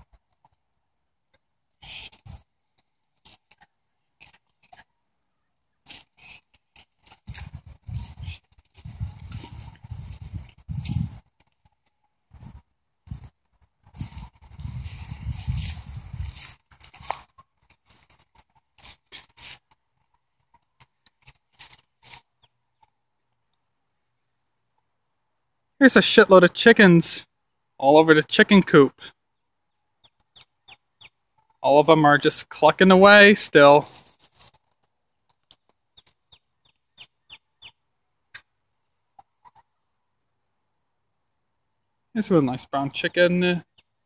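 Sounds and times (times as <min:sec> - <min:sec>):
hens clucking: 0:38.4 - 0:39.9.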